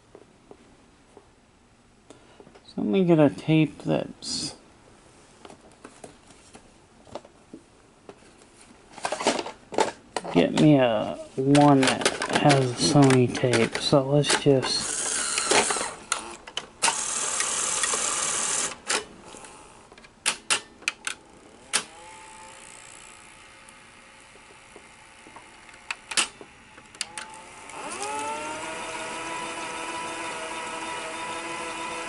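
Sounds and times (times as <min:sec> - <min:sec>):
mechanical clicks and clunks: 0:11.4 - 0:19.1, 0:25.4 - 0:32.0
motor whine and hum: 0:21.4 - 0:32.0.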